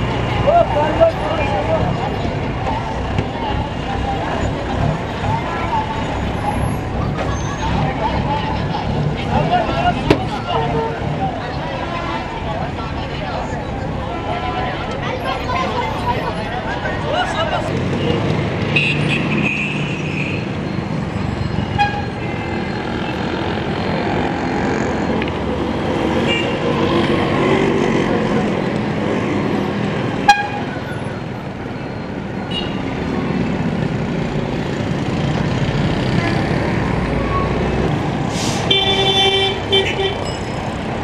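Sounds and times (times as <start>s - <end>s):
street traffic passing: 0.0s - 41.0s.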